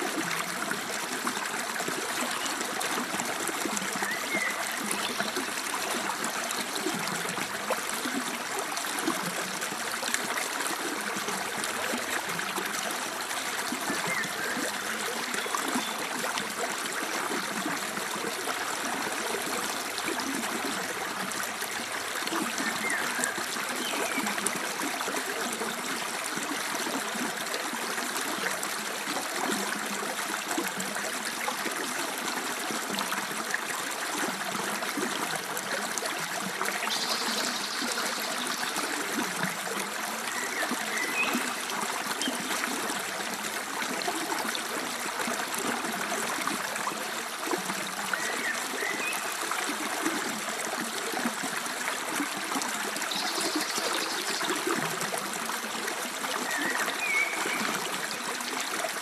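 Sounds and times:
stream flowing over rocks: 0.0 - 59.0.

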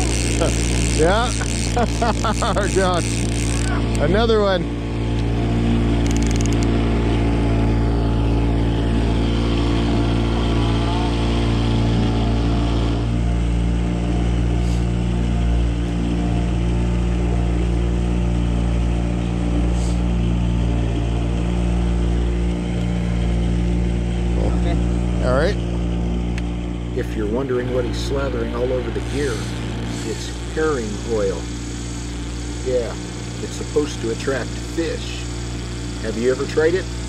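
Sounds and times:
boat motor humming: 0.0 - 37.0.

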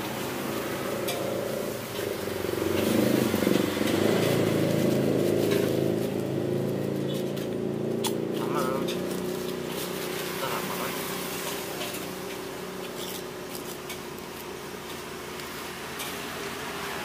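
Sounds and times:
wok sizzling hiss: 9.1 - 17.0.

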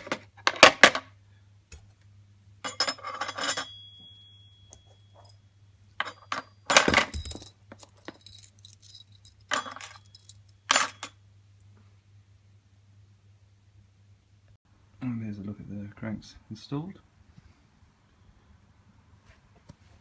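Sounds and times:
metal parts clinking on glass scale: 2.6 - 4.0, 6.0 - 11.2
thin metallic ringing tone: 2.6 - 7.5.

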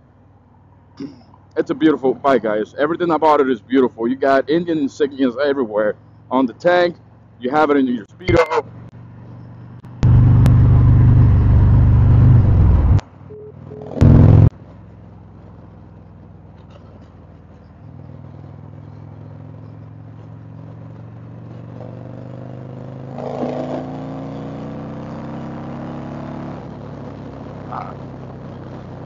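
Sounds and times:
motorcycle engine accelerating: 8.3 - 29.0.

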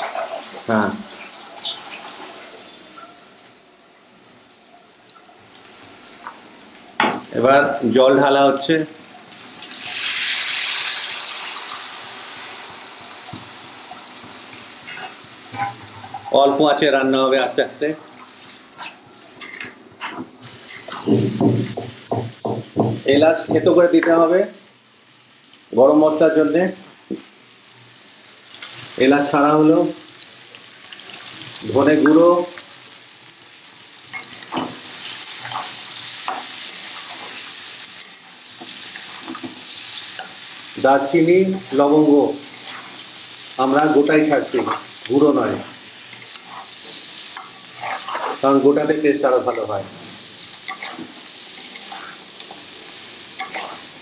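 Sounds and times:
water hissing in hot pan: 9.2 - 18.8, 27.5 - 54.0
spatula stirring and scraping: 13.9 - 16.4, 18.2 - 21.2, 34.1 - 40.6, 41.6 - 45.0, 45.6 - 54.0.

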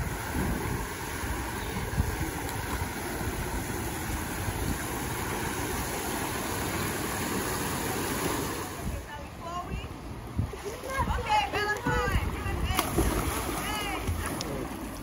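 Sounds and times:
water spilling into pool: 0.0 - 8.8, 12.7 - 15.0.

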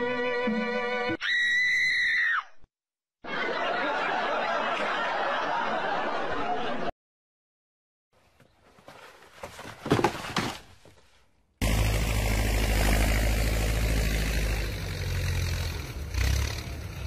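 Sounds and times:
tractor engine running: 11.6 - 17.0.

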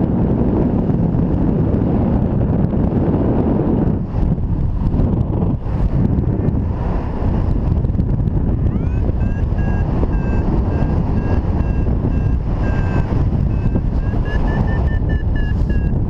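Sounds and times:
wind rushing over microphone: 0.0 - 16.0
variometer beeping: 8.6 - 16.0.

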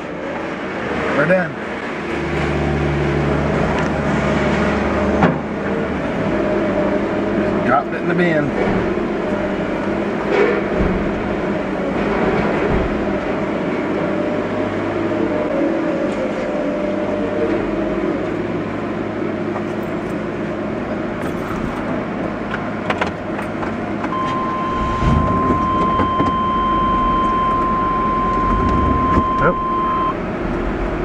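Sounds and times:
engine running: 0.0 - 31.0
steady high-pitched tone: 24.1 - 30.2.

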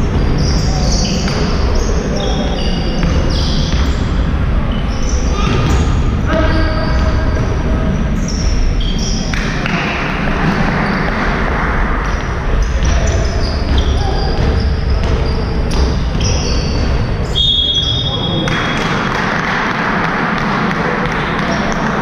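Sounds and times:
sneakers squeaking on floor: 0.0 - 18.8
basketball bouncing: 3.0 - 4.2, 5.0 - 8.6, 9.6 - 17.8.

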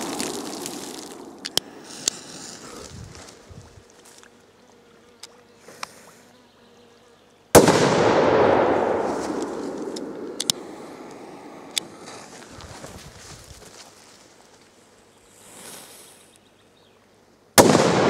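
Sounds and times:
firecracker bang: 7.6 - 10.4.

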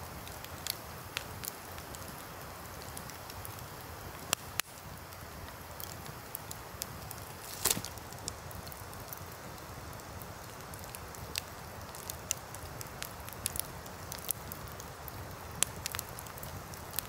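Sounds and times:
campfire crackling: 0.0 - 17.0
logs popping: 7.4 - 8.4.

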